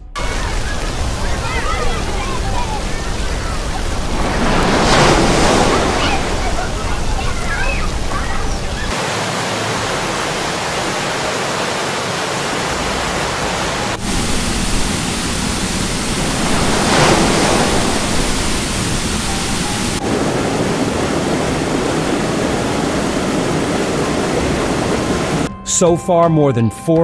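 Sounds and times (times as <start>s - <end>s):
floodwater rushing in river: 0.0s - 25.5s.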